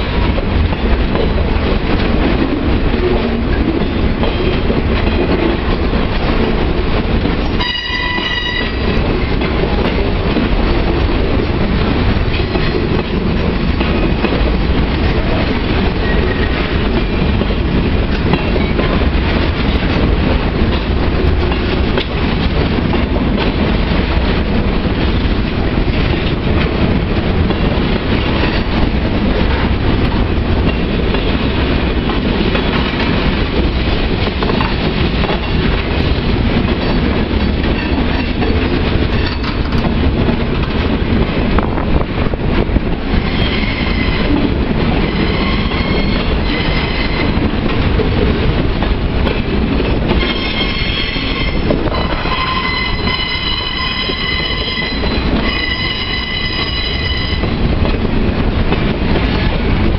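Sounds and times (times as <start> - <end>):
freight train wheels rumbling on rail: 0.0 - 59.9
wheels clicking over rail joints: 0.1 - 41.7.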